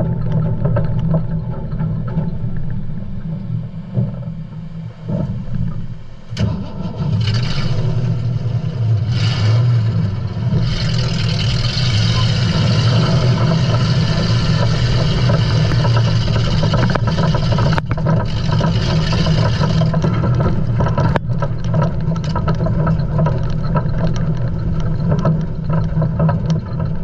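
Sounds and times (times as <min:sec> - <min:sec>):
loud engine running: 0:03.9 - 0:27.0.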